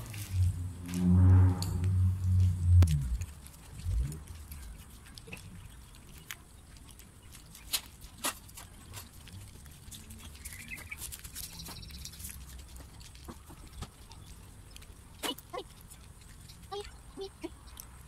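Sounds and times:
cats crunching dry kibble: 0.0 - 0.6, 2.4 - 18.0
low background rumble: 0.0 - 7.6.

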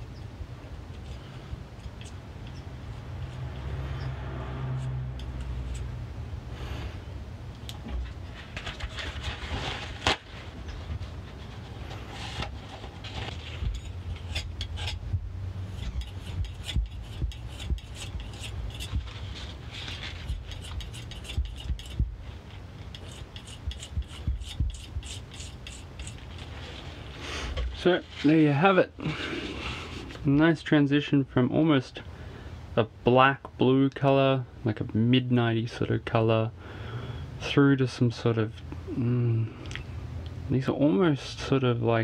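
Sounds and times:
palette knife scraping paint on marble: 15.7 - 22.1, 22.8 - 26.5.

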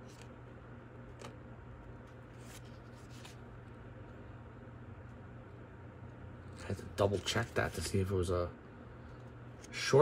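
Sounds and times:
cards flicking and rustling: 0.0 - 0.4, 2.1 - 3.6
low steady hum: 0.0 - 10.0.

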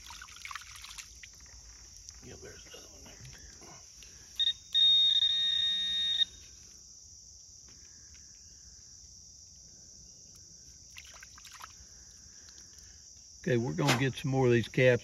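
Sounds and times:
high-pitched buzzing tone: 4.4 - 6.4
short beep: 4.4 - 6.4.

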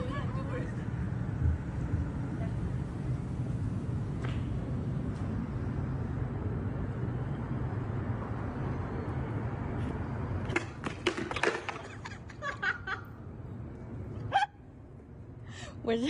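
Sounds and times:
skateboard wheels rolling on pavement: 0.0 - 15.2
skateboard clattering and scraping: 10.4 - 12.2.

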